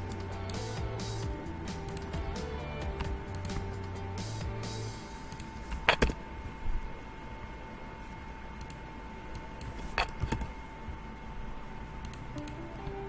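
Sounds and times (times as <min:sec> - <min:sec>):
mouse and keyboard clicks: 0:08.6 - 0:10.5.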